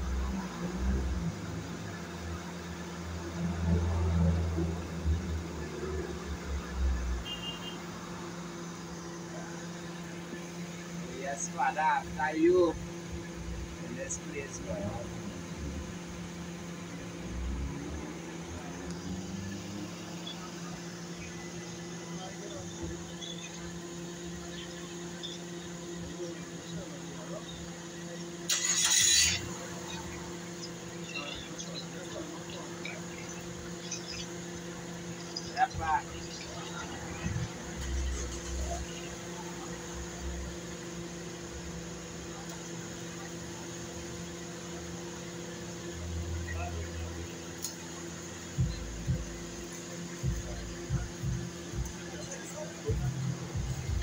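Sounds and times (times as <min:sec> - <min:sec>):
outdoor background noise: 0:00.0 - 0:54.0
steady mechanical hum: 0:06.9 - 0:54.0.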